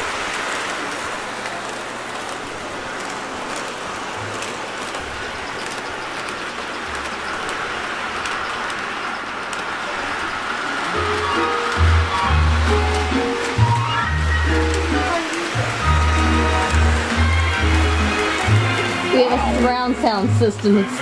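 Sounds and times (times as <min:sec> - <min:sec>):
model train wheels rattling: 0:00.0 - 0:21.0
faint clicks: 0:09.4 - 0:09.7.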